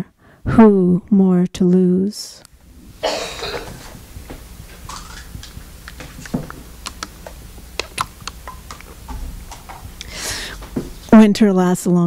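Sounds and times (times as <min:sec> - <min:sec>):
plastic water bottle crackling: 0:04.8 - 0:08.9.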